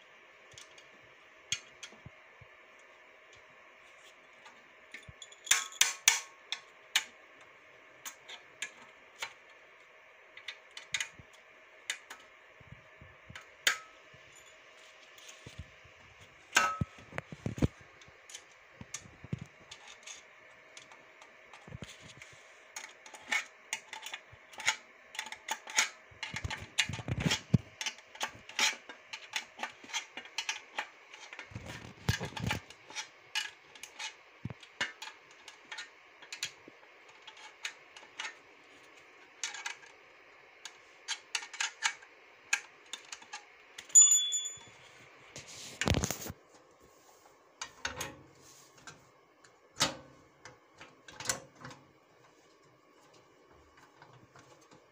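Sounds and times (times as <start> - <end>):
faint steady hum: 0.0 - 54.9.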